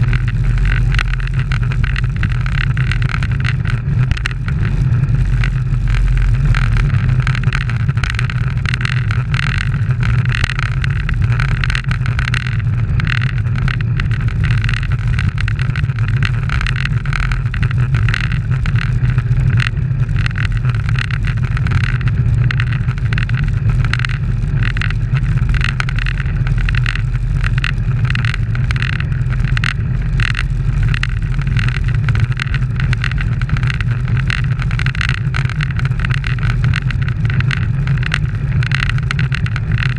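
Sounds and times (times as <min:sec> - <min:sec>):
wind buffeting camera microphone: 0:00.0 - 0:39.9.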